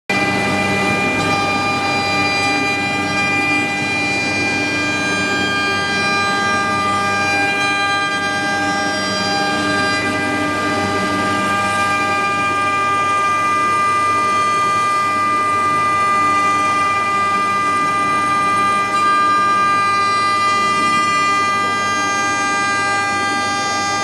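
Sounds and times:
router spindle whine: 0.1 - 24.0.

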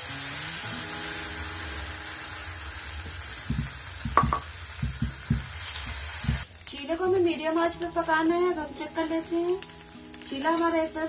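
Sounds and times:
batter sizzling in hot oil: 0.0 - 11.0
ladle knocking on pan: 3.4 - 5.5.

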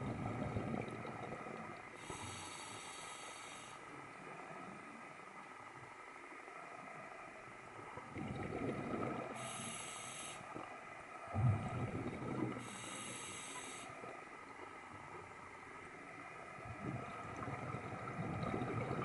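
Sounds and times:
exhaled bubbles underwater: 0.0 - 2.1, 7.9 - 9.7, 11.3 - 13.1, 16.6 - 19.0
regulator hiss: 2.0 - 3.8, 9.4 - 10.5, 12.6 - 14.0.

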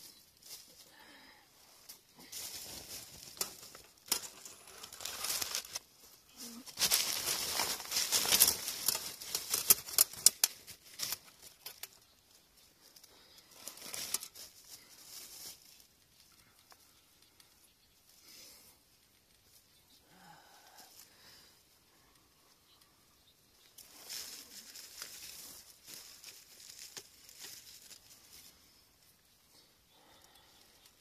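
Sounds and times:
plastic bag rustling and crinkling: 1.6 - 16.8, 23.7 - 28.9.

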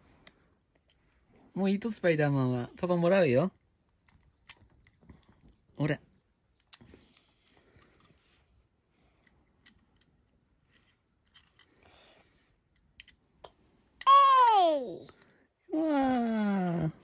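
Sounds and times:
faint plastic toy clicks: 9.1 - 15.4.

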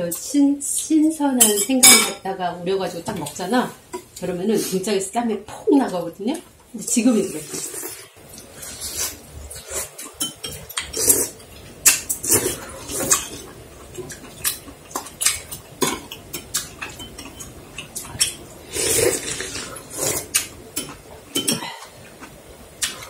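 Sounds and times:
metal utensils clinking on dishes: 10.1 - 11.2.

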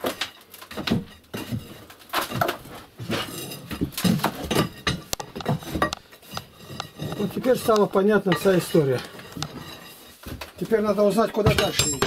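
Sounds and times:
metal rod scraping inside stove flue: 3.0 - 10.2.

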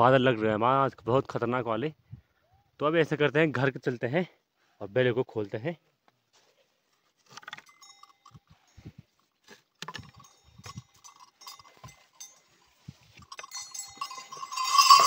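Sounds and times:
metal neck bells jingling: 7.5 - 15.0.

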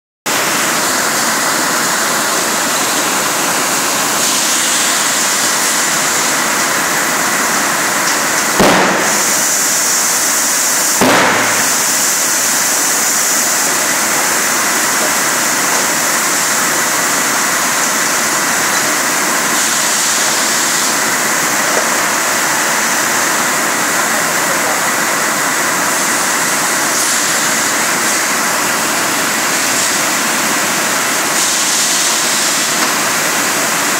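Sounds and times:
filling machine hissing: 0.3 - 33.9
sharp bangs: 8.4 - 10.0, 10.8 - 13.4.

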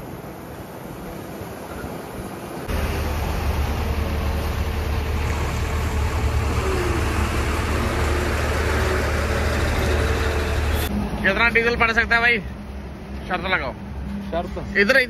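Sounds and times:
faint road noise: 0.0 - 15.0
truck diesel engine droning: 2.6 - 11.3.

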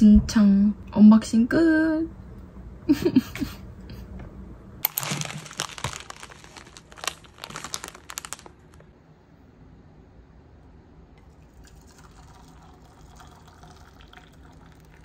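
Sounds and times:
packaging crinkling: 4.8 - 8.9.

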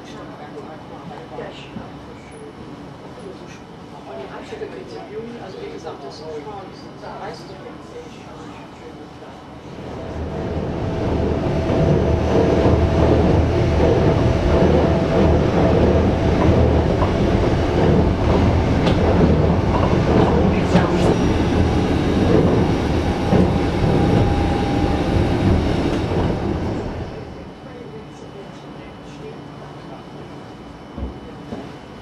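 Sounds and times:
train rolling rumble: 9.6 - 32.0.

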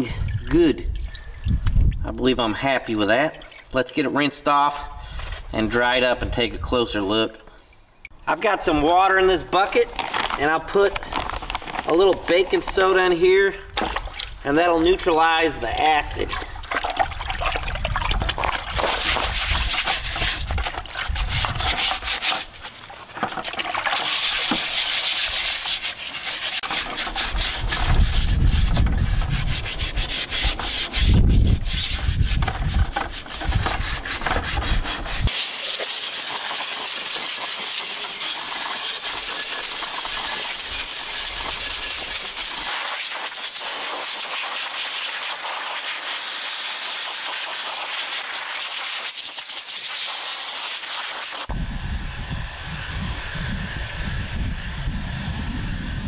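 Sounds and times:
water sloshing in a bucket: 0.1 - 4.1, 13.7 - 15.0, 15.8 - 31.0
hands rubbing metal plate: 18.4 - 44.3
compressed-air blow gun hiss: 35.3 - 51.5.

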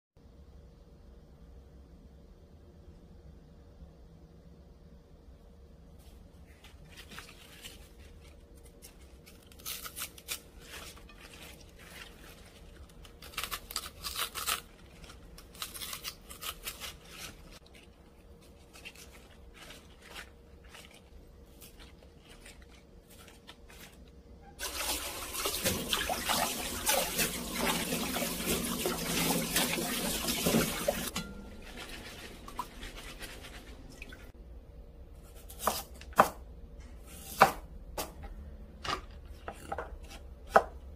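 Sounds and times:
vegetable stalks crackling: 6.5 - 25.0
running water: 24.6 - 34.3.

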